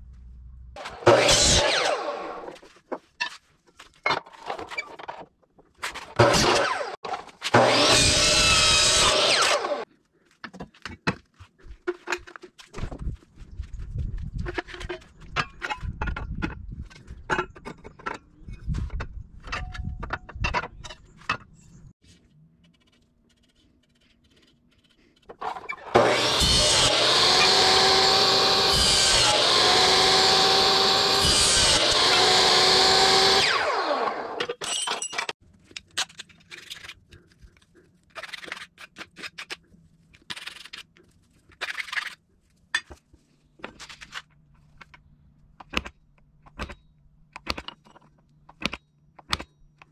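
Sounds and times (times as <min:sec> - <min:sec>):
power tool whining: 0:00.8 - 0:02.5, 0:06.2 - 0:09.9, 0:25.4 - 0:34.5.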